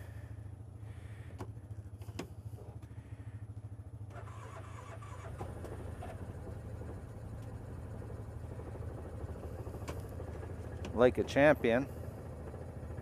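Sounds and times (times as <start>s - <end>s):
engine starting and idling: 4.0s - 13.0s.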